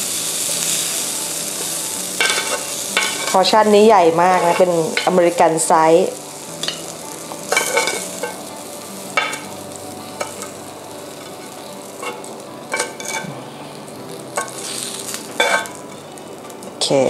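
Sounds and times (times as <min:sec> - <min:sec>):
steady low hiss: 0:00.0 - 0:17.0
metal tongs scraping grill pan: 0:01.6 - 0:08.5, 0:09.1 - 0:13.3, 0:14.0 - 0:15.8.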